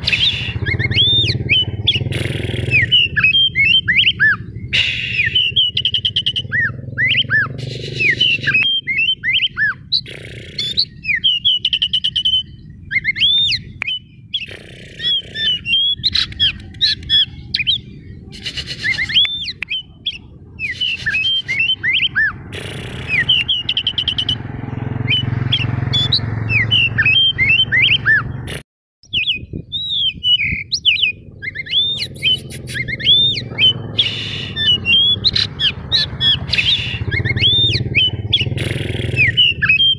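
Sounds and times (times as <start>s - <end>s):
bird singing: 0.0s - 39.9s.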